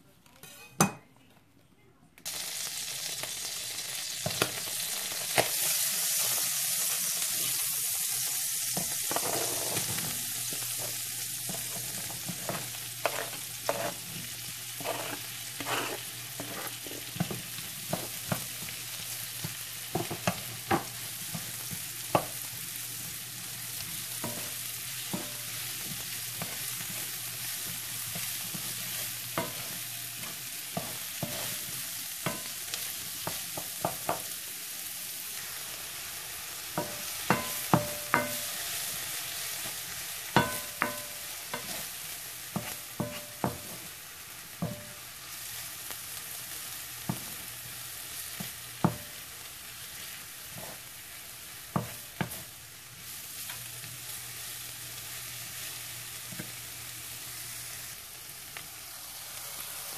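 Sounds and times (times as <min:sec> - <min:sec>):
mushrooms and onions sizzling in butter: 0:02.2 - 0:59.9
wooden spoon scraping and knocking pan: 0:08.8 - 0:18.8, 0:24.2 - 0:32.5, 0:36.8 - 0:38.5, 0:40.4 - 0:41.9, 0:42.5 - 0:43.9.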